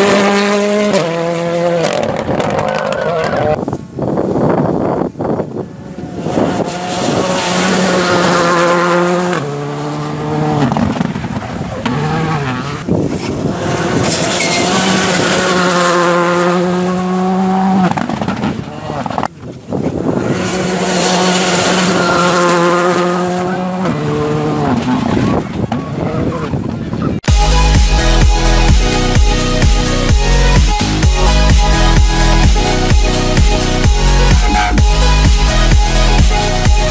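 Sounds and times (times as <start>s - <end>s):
rally cars passing at speed: 0.0s - 4.5s, 5.2s - 26.8s.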